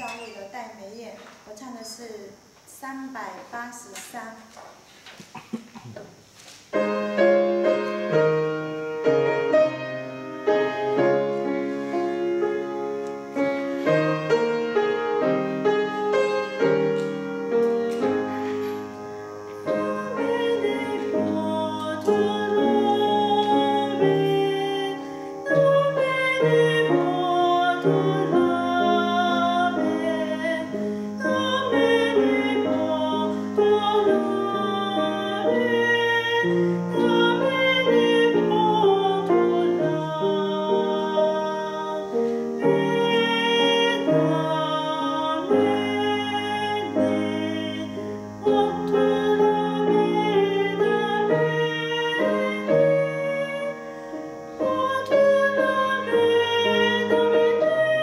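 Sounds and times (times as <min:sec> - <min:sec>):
grand piano accompaniment: 0:06.7 - 0:58.0
woman singing with vibrato: 0:19.6 - 0:54.0, 0:54.6 - 0:58.0.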